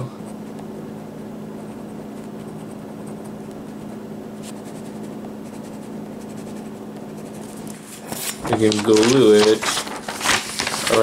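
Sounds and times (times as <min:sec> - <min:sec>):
steady low hum: 0:00.0 - 0:11.0
ballpoint pen scratching paper: 0:01.6 - 0:07.8.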